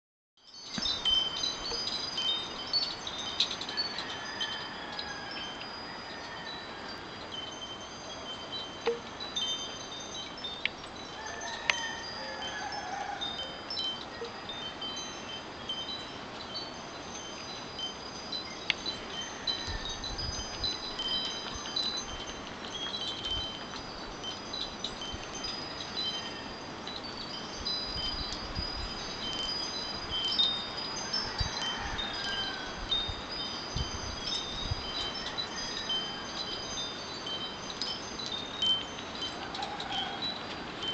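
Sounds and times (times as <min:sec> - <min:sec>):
metal wind chimes ringing: 0:00.4 - 0:40.9
wind buffeting microphone: 0:18.4 - 0:40.9.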